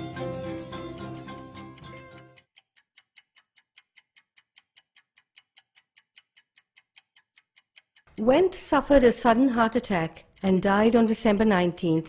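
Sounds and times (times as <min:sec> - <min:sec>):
music: 0:00.0 - 0:02.4
clock ticking rapidly: 0:00.0 - 0:12.0.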